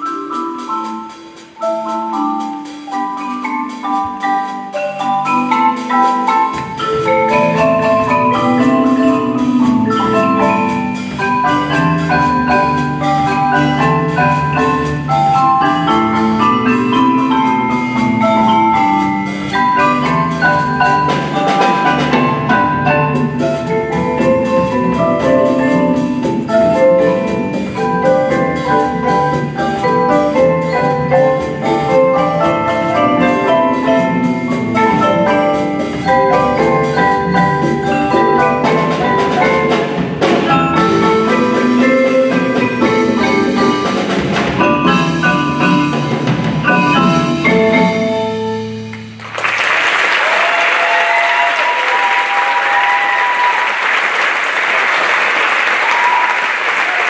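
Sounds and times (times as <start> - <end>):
marimbas and vibraphones playing: 0.0 - 49.3, 50.2 - 53.7, 55.8 - 57.0
drum kit: 0.0 - 53.8
audience applause: 49.2 - 57.0
audience shouts: 50.0 - 57.0.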